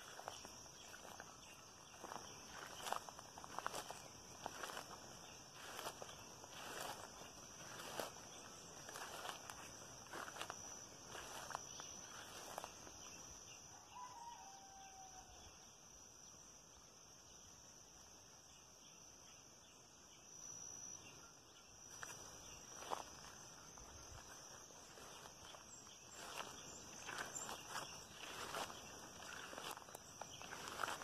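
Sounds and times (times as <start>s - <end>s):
footsteps in vegetation: 0.0s - 13.2s, 21.9s - 31.0s
high insect trill: 0.0s - 31.0s
distant rooster crowing: 13.7s - 15.6s.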